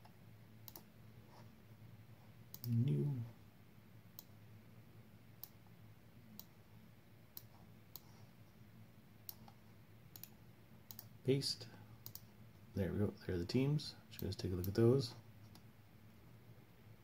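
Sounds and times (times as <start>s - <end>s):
computer mouse clicking: 0.0s - 0.9s, 2.5s - 2.8s, 7.3s - 8.2s, 9.2s - 11.1s, 12.0s - 12.3s
faint low hum: 0.0s - 17.0s.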